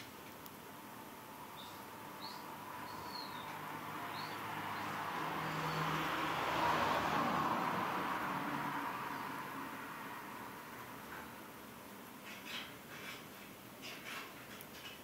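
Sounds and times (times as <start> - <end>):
high bird chirps: 1.6 - 5.8.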